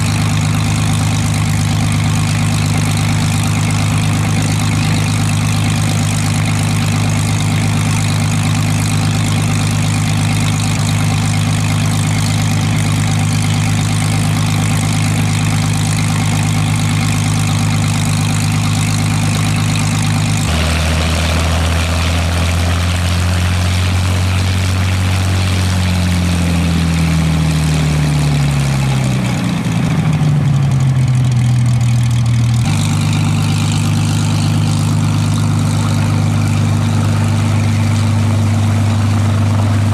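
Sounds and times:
aircraft engine droning: 0.0 - 31.9, 32.6 - 39.9.

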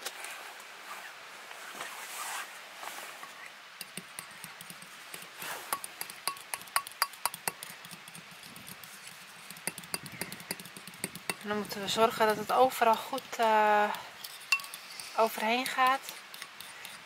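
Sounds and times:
fork whisking in ceramic bowl: 3.8 - 17.0.

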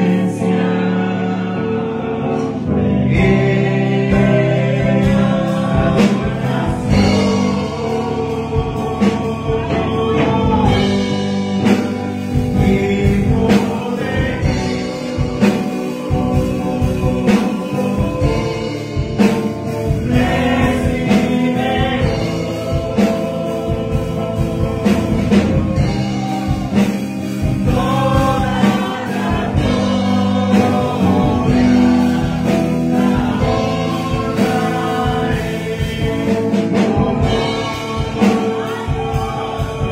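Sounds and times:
instrumental accompaniment with beat: 0.0 - 39.9
man singing into a microphone: 0.0 - 39.9.

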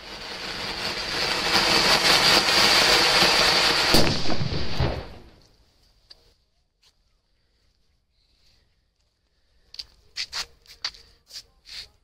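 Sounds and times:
firework bang: 0.0 - 5.4
firework hissing and crackling: 0.0 - 5.4.

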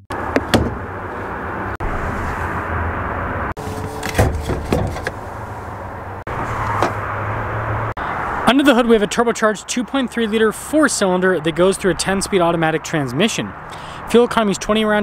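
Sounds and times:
hood latch knock: 0.1 - 0.8
outdoor background noise: 0.1 - 15.0.

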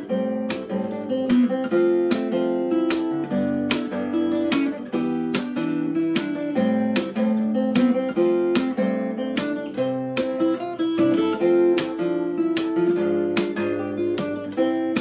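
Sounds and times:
fingerstyle acoustic guitar: 0.0 - 15.0.

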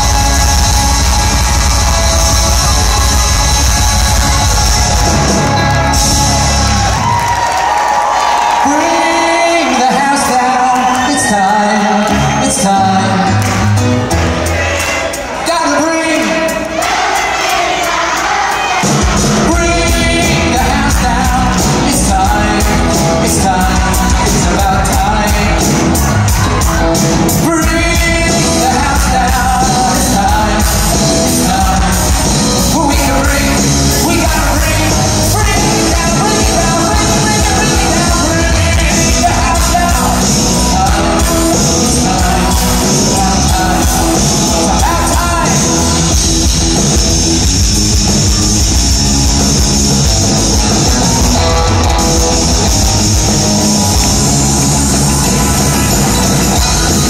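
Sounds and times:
live band music: 0.0 - 57.0
man singing into microphone: 8.6 - 13.8, 14.8 - 16.7, 19.4 - 26.7, 27.3 - 46.3, 56.2 - 57.0.

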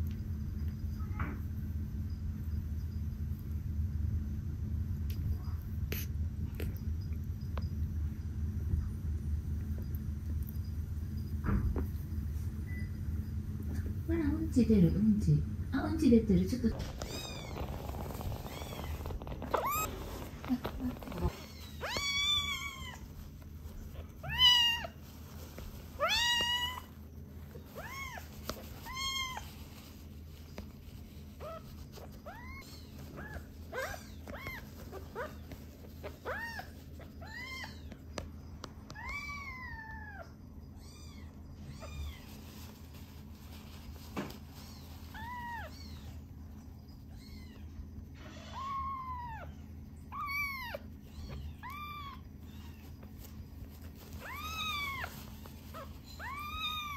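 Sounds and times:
tissue wiping: 16.6 - 37.7, 41.7 - 46.0, 51.6 - 56.9
kitten mewing: 16.8 - 23.1.

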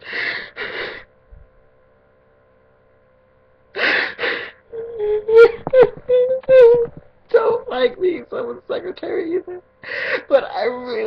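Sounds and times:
person sobbing: 0.0 - 1.0, 3.8 - 7.6, 9.2 - 10.5
wailing sob: 3.8 - 7.0.

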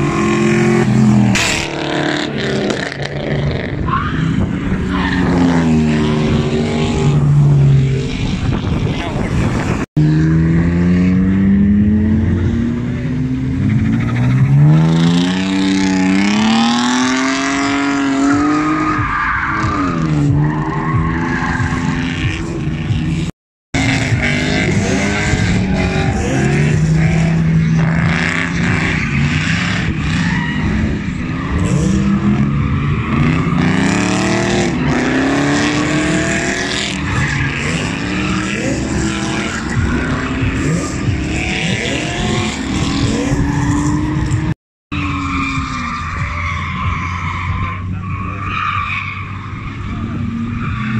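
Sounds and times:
car engine revving: 0.0 - 50.9.

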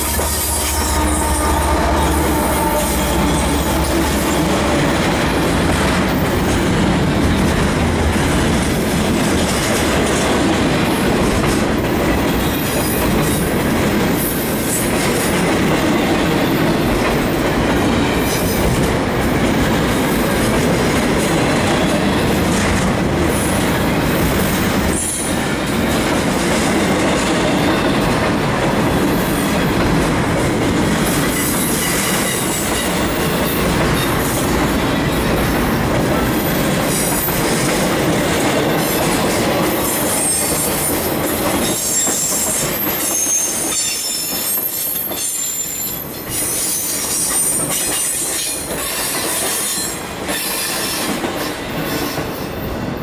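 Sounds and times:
diesel locomotive rumble: 0.0 - 9.9
steel wheels rushing on rail: 0.0 - 53.0.

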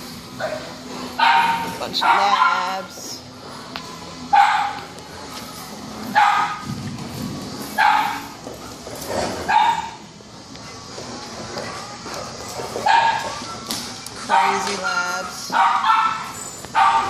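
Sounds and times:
dog barking: 0.4 - 2.8, 4.3 - 4.8, 6.1 - 6.6, 7.8 - 8.3, 9.5 - 10.0, 12.8 - 13.4, 14.3 - 14.8, 15.5 - 17.0.

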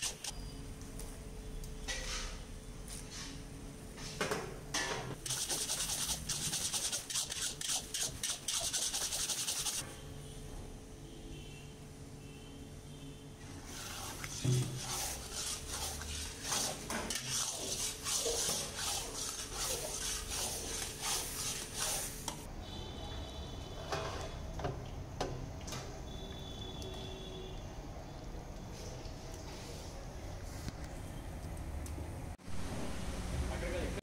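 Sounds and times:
metal spatula scraping pan: 13.6 - 22.3.

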